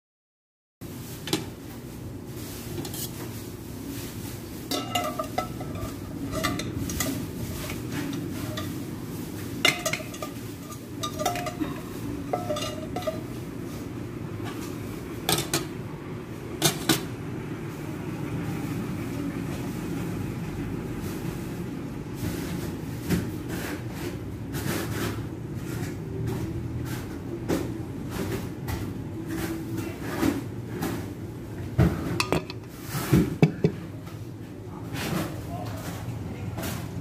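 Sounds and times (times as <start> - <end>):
oven low hum: 0.8 - 37.0
metal utensil clinking on rack: 4.7 - 8.8, 9.6 - 13.3.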